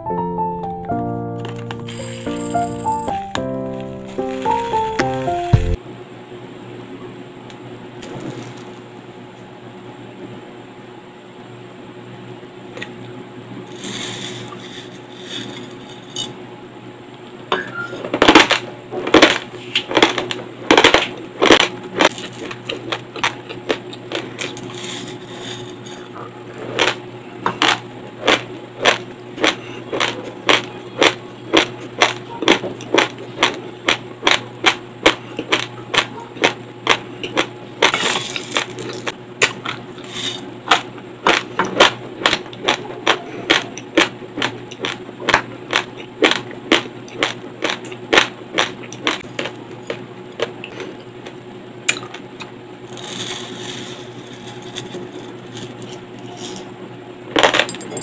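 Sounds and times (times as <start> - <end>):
crunching raw rice: 18.2 - 27.0, 27.6 - 51.3, 51.9 - 56.6.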